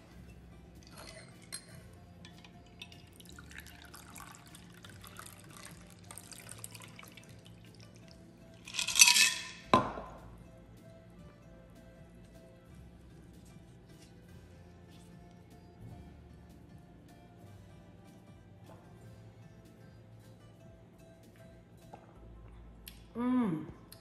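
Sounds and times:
liquid pouring trickle: 2.2s - 9.6s.

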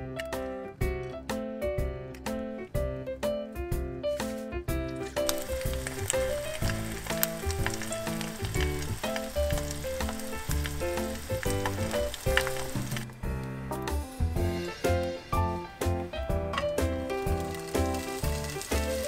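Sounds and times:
background music: 0.0s - 19.0s
egg sizzling in oil: 5.2s - 13.2s, 16.8s - 19.0s.

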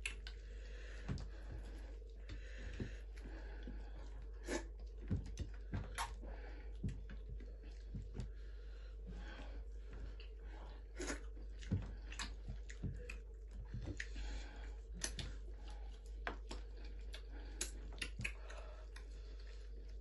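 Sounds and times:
fingers squishing food: 0.0s - 0.4s, 10.1s - 19.2s
mouths chewing wetly: 9.2s - 20.0s.

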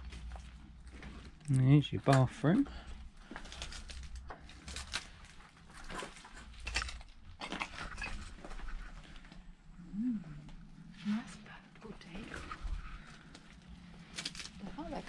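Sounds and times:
footsteps crunching over debris: 3.0s - 9.3s
low rumble: 6.4s - 15.0s.

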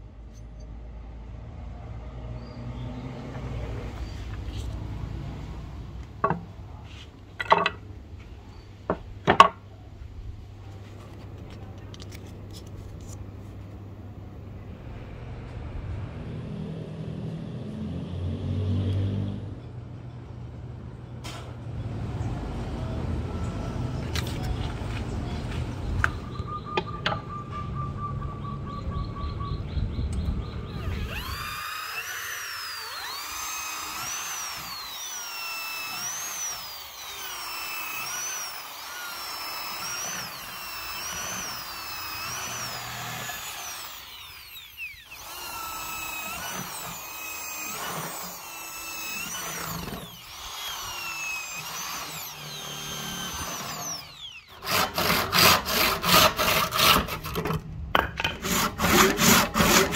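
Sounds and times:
electric drill boring wood: 30.7s - 57.1s, 58.1s - 59.9s.

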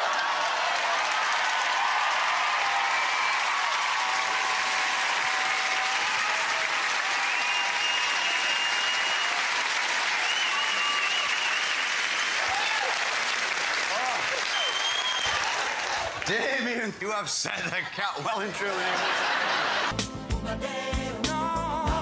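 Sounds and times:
audience applauding: 0.0s - 16.9s
high whistles: 7.2s - 9.4s, 10.2s - 12.5s, 14.4s - 15.4s.

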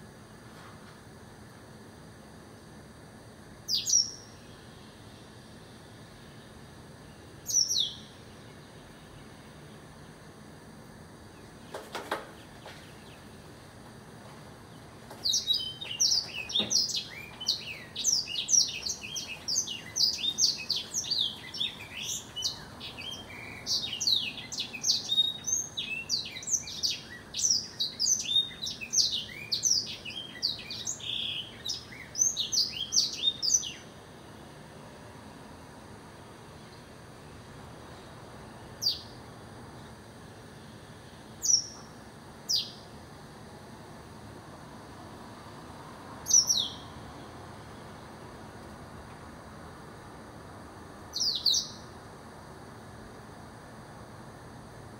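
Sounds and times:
bird singing high trills: 3.7s - 4.7s, 7.4s - 8.3s, 15.2s - 33.9s, 38.8s - 39.2s, 41.4s - 41.9s, 42.5s - 42.8s, 46.2s - 46.9s, 51.1s - 51.9s.

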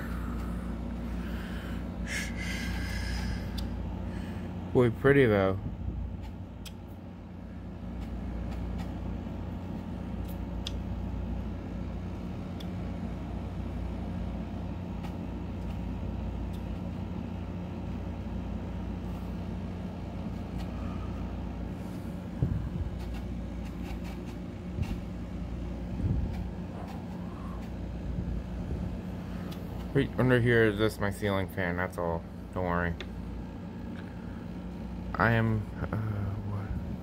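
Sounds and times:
ceiling fan humming: 0.0s - 37.0s.

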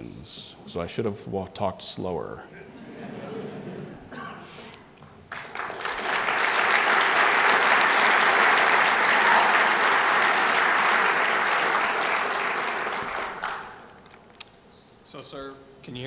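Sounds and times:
audience applauding: 5.3s - 14.3s.

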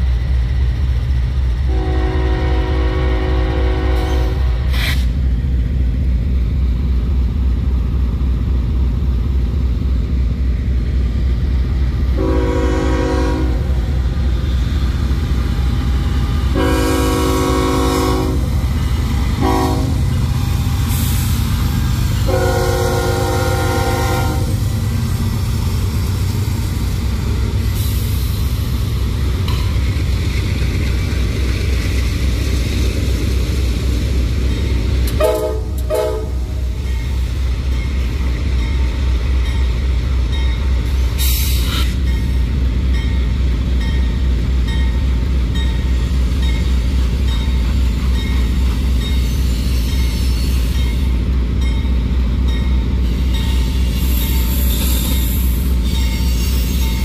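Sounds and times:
locomotive air horn: 1.7s - 4.6s, 12.2s - 13.7s, 16.6s - 18.6s, 19.4s - 20.1s, 22.2s - 24.6s, 35.1s - 36.6s.

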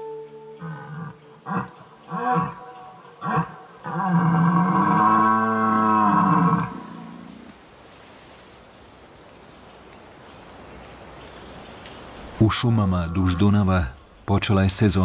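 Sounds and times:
deer stag roaring: 0.6s - 7.4s.

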